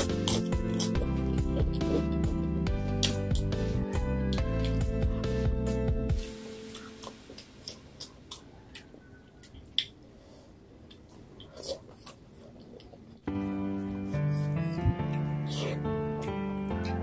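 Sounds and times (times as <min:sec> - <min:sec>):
background music with steady beat: 0:00.0 - 0:08.3
chewing and lip smacks: 0:03.0 - 0:05.1, 0:06.7 - 0:10.1, 0:10.8 - 0:16.9
fingers picking food from plates: 0:10.8 - 0:15.3.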